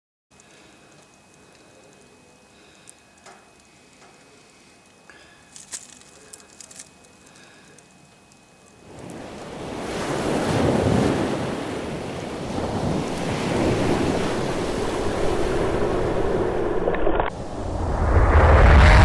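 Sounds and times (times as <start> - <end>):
ocean waves rushing: 8.8 - 19.0.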